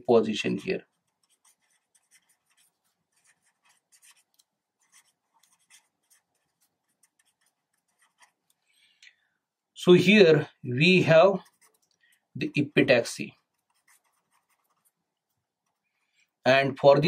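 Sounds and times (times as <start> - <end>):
pen scratching on paper: 0.4 - 8.6, 11.3 - 12.0, 13.3 - 15.9.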